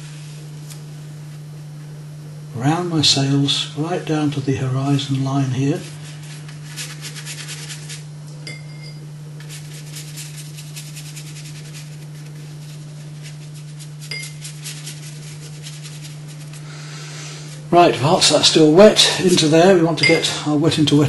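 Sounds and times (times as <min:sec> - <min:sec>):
steady low hum: 0:00.0 - 0:21.0
brush scrubbing on paper: 0:05.0 - 0:08.1, 0:09.4 - 0:17.7
light clinks: 0:08.4 - 0:09.0.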